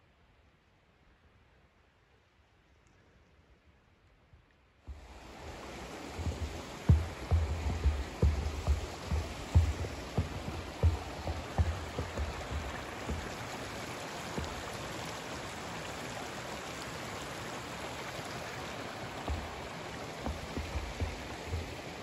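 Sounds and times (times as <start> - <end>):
footsteps thudding: 4.9 - 13.6, 14.4 - 14.7, 19.3 - 21.8
steady rushing noise: 4.9 - 15.6, 19.0 - 22.0.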